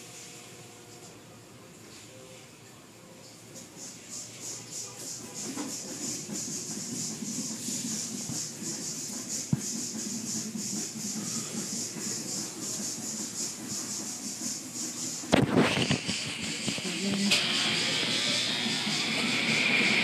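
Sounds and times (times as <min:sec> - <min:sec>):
water spray hissing: 0:03.9 - 0:19.9.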